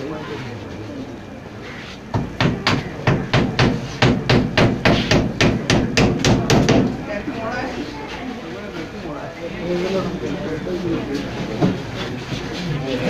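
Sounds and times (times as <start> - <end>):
hammer driving nails: 2.2 - 6.9.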